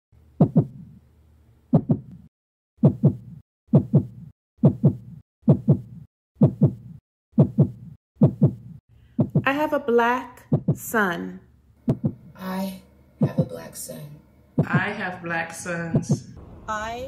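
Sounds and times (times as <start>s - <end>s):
heartbeat thumps: 0.4s - 1.0s, 1.7s - 9.6s, 10.4s - 10.9s, 11.8s - 12.3s, 14.5s - 15.1s, 15.9s - 16.6s.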